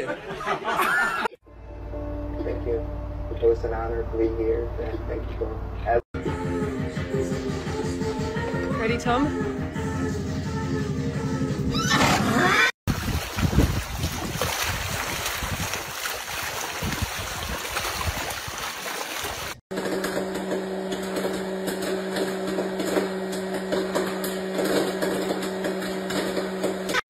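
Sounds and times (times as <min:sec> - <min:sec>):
wind rushing over microphone: 0:12.9 - 0:16.0.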